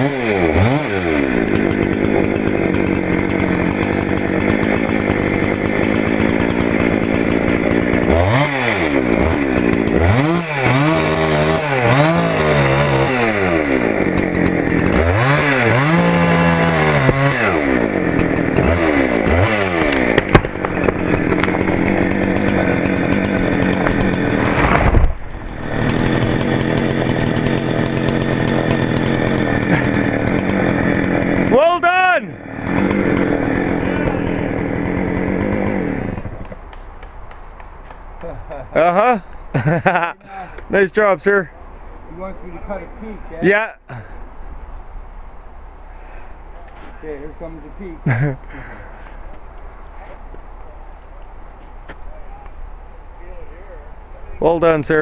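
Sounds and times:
chainsaw engine revving: 0.0s - 44.2s, 45.7s - 51.1s
heavy thump: 23.8s - 25.5s.

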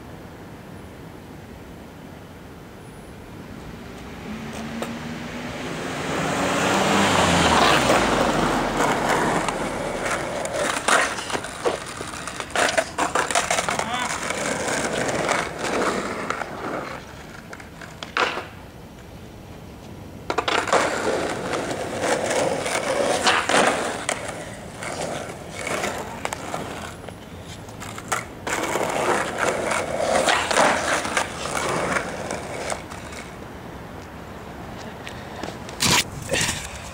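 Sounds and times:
skateboard wheels rolling on pavement: 0.0s - 36.9s
skateboard clacking on ground: 7.5s - 19.1s, 20.2s - 33.4s, 34.8s - 36.9s.

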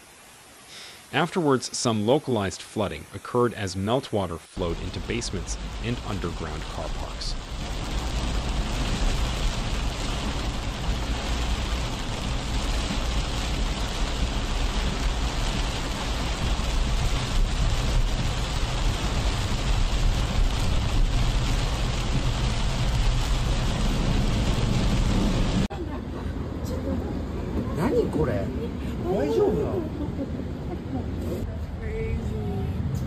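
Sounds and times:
heavy rain on tarmac: 4.6s - 25.7s.

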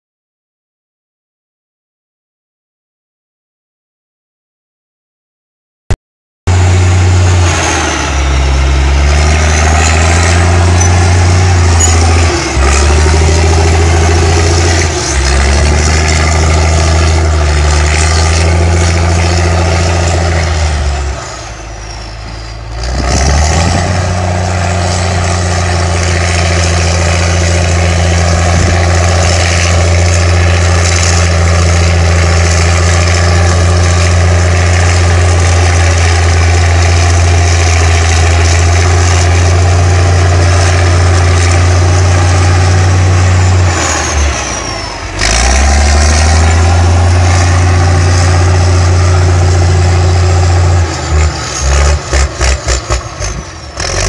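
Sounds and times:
bulldozer diesel engine running hard: 6.5s - 54.0s.

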